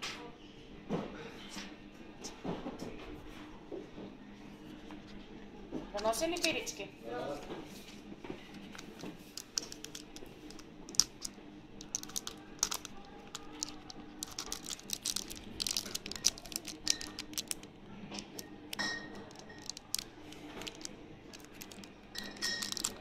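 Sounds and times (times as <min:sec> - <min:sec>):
plastic wrap crinkling: 0:08.5 - 0:23.0
small clicks and taps: 0:08.6 - 0:23.0.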